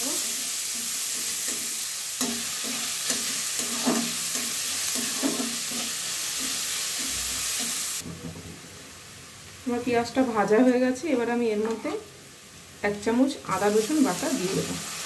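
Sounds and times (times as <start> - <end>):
onions sizzling in oil: 0.0 - 15.0
metal spatula scraping pan: 0.7 - 7.9.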